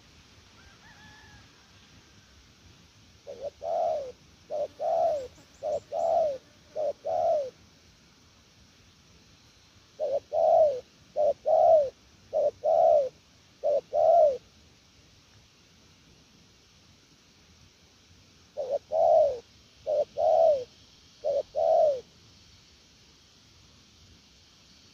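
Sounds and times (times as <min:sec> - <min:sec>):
dove cooing: 0:03.2 - 0:07.6, 0:10.0 - 0:14.5, 0:18.6 - 0:22.1.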